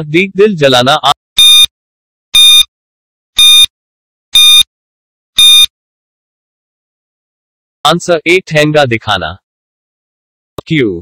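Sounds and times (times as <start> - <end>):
short electronic beeps: 1.4 - 1.7, 2.4 - 2.7, 3.4 - 3.7, 4.4 - 4.7, 5.4 - 5.7.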